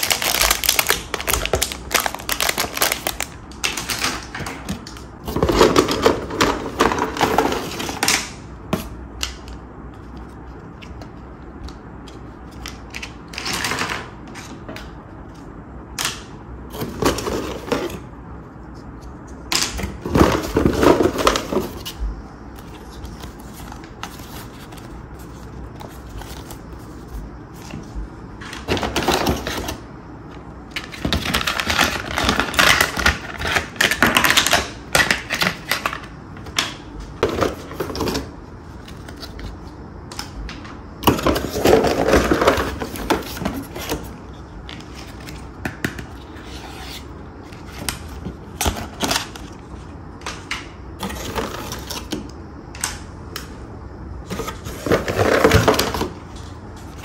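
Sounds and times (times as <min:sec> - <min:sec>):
packaging rustle: 0:00.0 - 0:04.4.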